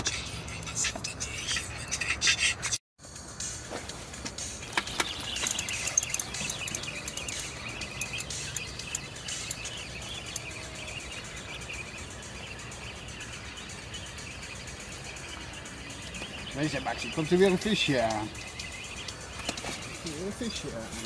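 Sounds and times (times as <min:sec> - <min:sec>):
faint outdoor hiss: 0:03.1 - 0:21.0
small birds chirping: 0:04.2 - 0:21.0.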